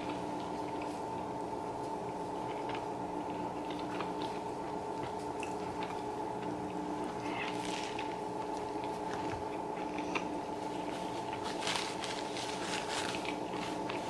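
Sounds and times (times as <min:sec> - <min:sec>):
faint steady hum: 0:00.0 - 0:14.0
wet crackly chewing: 0:00.0 - 0:14.0
paper napkin rustling: 0:07.5 - 0:09.3, 0:10.6 - 0:14.0.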